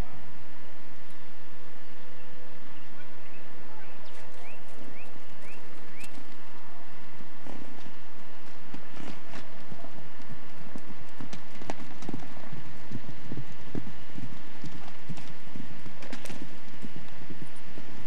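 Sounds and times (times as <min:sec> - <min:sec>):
horse hooves clopping: 0:03.8 - 0:18.0.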